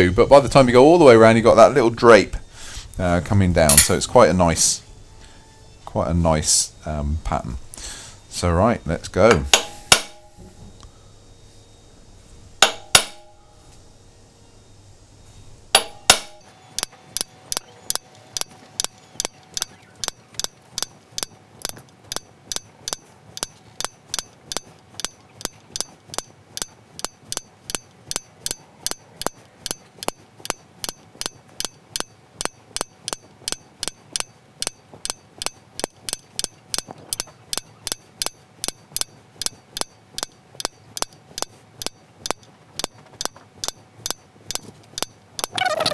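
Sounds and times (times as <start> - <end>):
hammer tapping metal punch: 3.7 - 4.1, 9.2 - 10.6, 12.6 - 13.5, 15.8 - 45.6.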